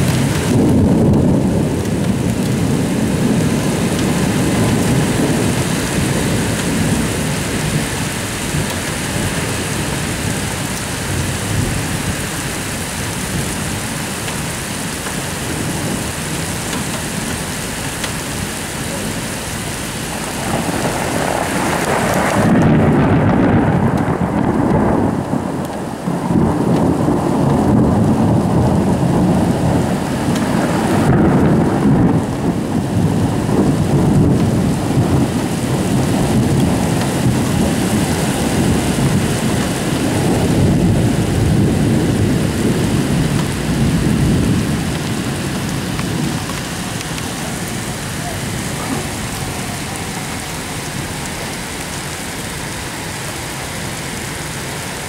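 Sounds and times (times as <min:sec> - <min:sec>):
heavy rain: 0:00.0 - 0:55.0
thunder rumbling: 0:00.0 - 0:55.0.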